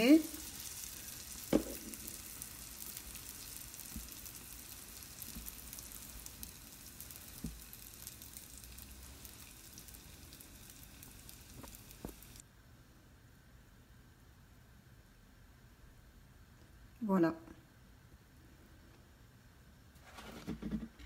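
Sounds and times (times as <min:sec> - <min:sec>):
hot oil sizzling: 0:00.0 - 0:12.4.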